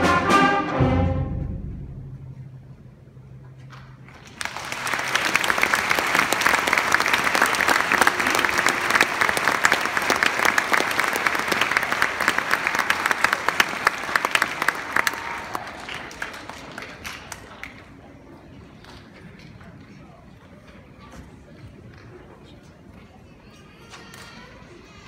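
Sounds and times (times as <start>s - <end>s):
audience applauding: 3.7s - 18.1s.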